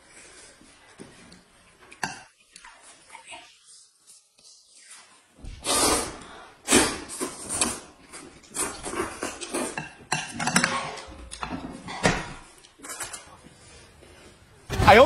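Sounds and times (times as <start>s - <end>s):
slurping noodles: 5.5s - 10.0s.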